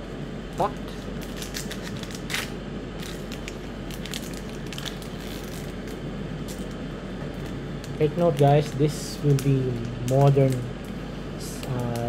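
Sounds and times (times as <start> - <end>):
foil wrapper crinkling as torn open: 1.2 - 6.7.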